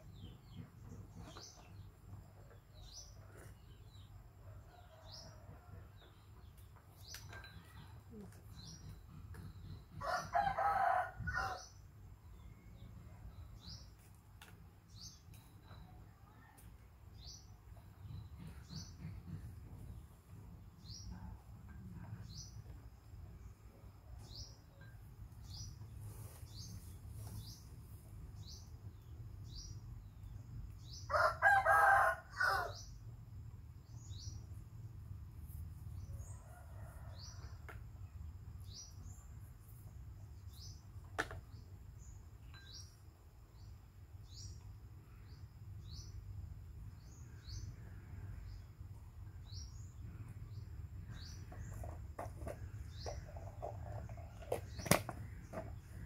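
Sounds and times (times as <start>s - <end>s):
rooster crowing: 10.0s - 11.6s, 31.1s - 32.8s.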